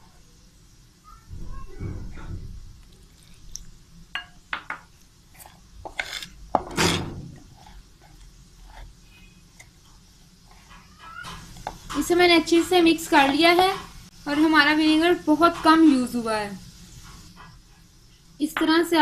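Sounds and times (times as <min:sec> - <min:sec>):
spoon stirring batter in bowl: 0:02.8 - 0:14.1.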